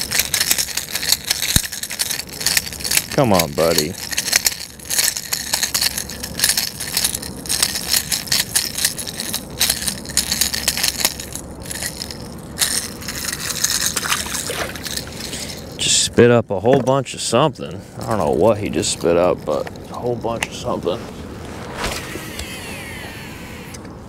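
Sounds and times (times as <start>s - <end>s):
lure rattle clicking: 0.0s - 15.8s.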